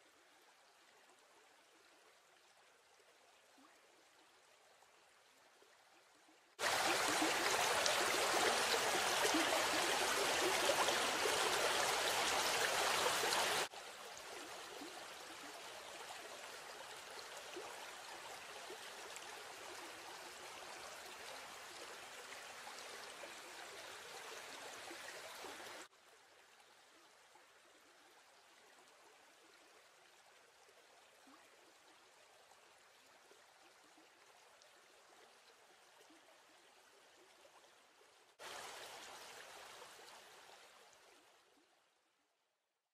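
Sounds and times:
stream and small waterfall rushing: 0:06.6 - 0:15.1, 0:38.4 - 0:40.4.

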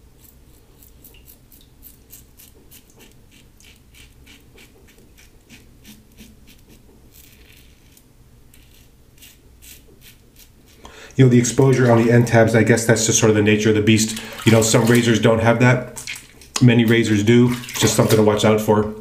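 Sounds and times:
razor rasping through stubble: 0:00.2 - 0:10.9.

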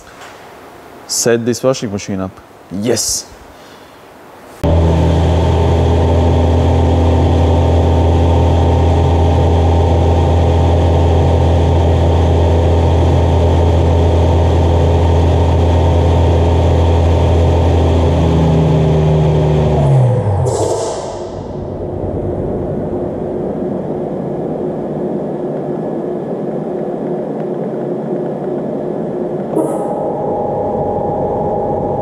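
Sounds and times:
washing machine motor whining: 0:04.6 - 0:27.2, 0:29.6 - 0:32.0.

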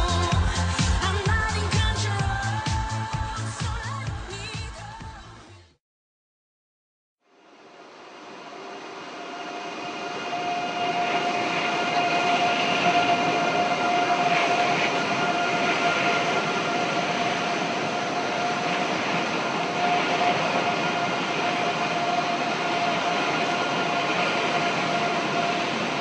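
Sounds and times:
vehicle running noise: 0:00.0 - 0:03.5
steady whine: 0:00.0 - 0:03.6, 0:07.4 - 0:26.0.

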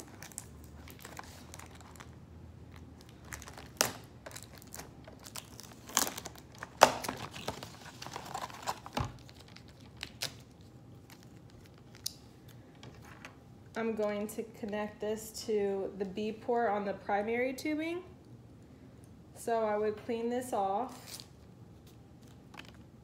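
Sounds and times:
foil packet crinkling: 0:00.0 - 0:12.6.

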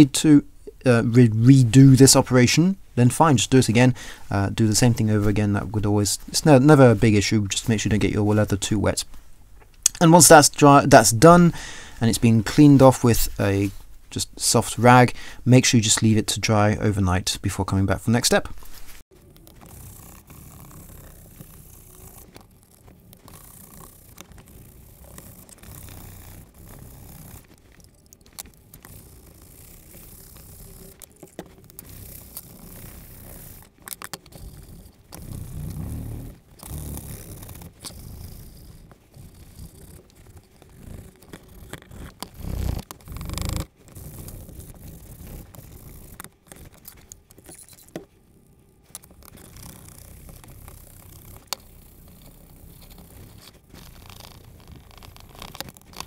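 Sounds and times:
scrubbing leather with rag: 0:18.5 - 0:56.0
small handling clicks: 0:19.3 - 0:38.4.

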